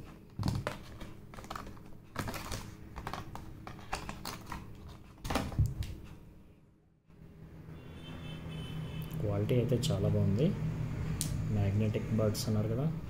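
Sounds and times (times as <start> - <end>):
plastic packaging clicks and crackles: 0.0 - 6.0.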